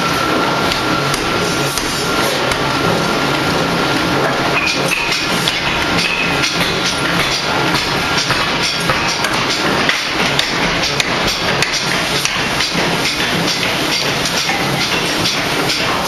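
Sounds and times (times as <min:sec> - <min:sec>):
forging machinery clatter: 0:00.0 - 0:16.0
sharp metallic knocks: 0:04.6 - 0:16.0.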